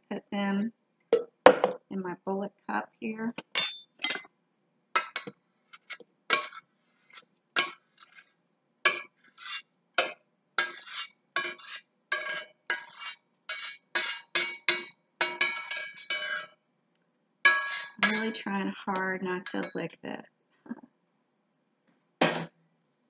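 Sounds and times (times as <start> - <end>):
metal spoon scraping saucepan: 5.0 - 8.3, 8.9 - 16.6, 17.5 - 19.9.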